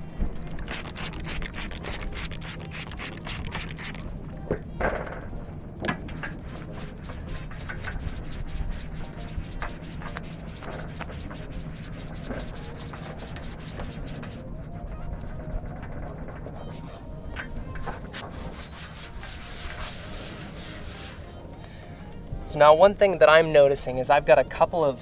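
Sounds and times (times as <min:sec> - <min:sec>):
trigger spray bottle squirting: 0:00.6 - 0:04.1
cloth wiping glass: 0:06.2 - 0:17.0, 0:18.1 - 0:21.4.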